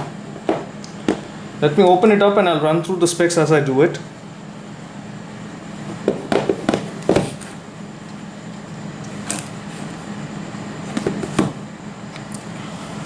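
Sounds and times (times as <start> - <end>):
cardboard box knocking on wood table: 6.0 - 7.4.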